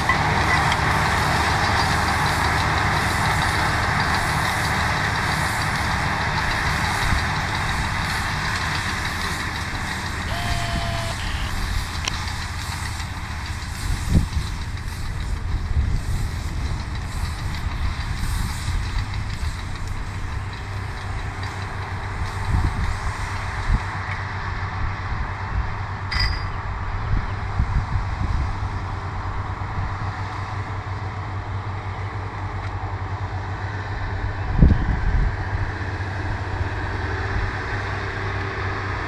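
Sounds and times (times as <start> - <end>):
baling machinery working: 0.0 - 23.9
tractor engine running: 0.0 - 39.0.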